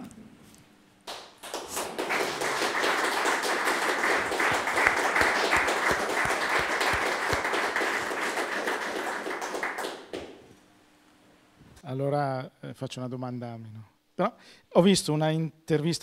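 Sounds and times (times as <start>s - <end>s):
audience applause: 1.1s - 10.5s.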